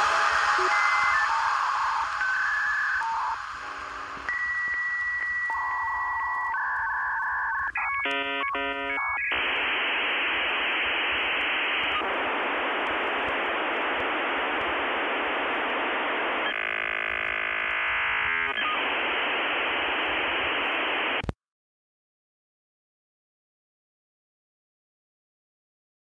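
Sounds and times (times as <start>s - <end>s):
modem warbling tones: 0.0s - 3.4s
held modem tones: 0.0s - 21.3s
data noise hiss: 0.0s - 21.4s.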